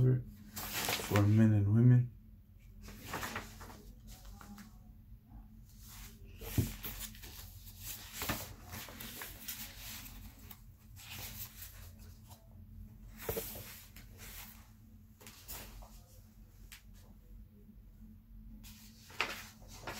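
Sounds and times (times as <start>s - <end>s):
soft rustling and handling: 0.4s - 1.5s, 2.6s - 17.4s, 18.6s - 19.9s.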